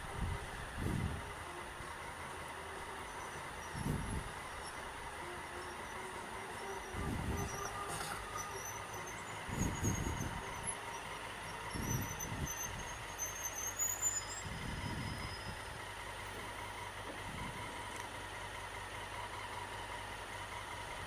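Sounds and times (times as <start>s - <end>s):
motorcycle engine rumble: 0.0s - 13.3s
traffic hum: 0.0s - 21.0s
thin high squeals: 1.5s - 15.8s.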